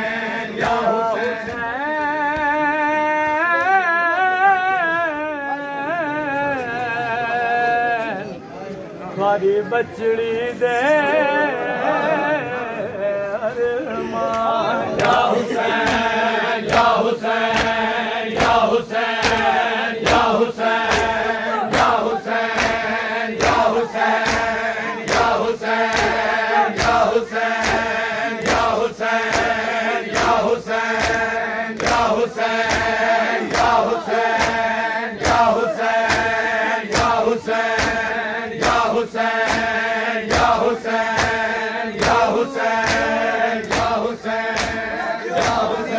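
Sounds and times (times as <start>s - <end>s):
men chanting together: 0.0s - 8.2s, 10.7s - 45.9s
hands slapping chests: 15.0s - 17.8s, 18.4s - 22.8s, 23.4s - 45.8s.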